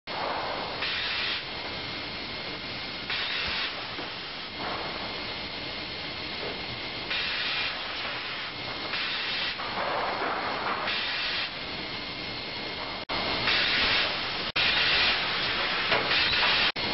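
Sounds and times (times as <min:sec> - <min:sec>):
short hissing bursts of saw cuts: 0:00.8 - 0:01.4, 0:03.1 - 0:03.9, 0:07.1 - 0:09.6, 0:10.9 - 0:11.6, 0:13.4 - 0:16.8.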